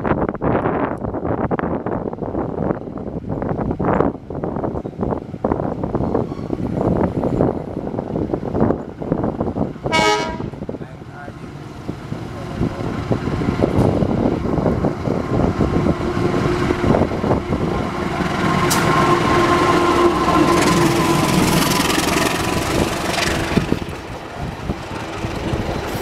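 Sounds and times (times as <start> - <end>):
locomotive engine: 2.8 - 26.0
train wheels clattering on rails: 11.8 - 26.0.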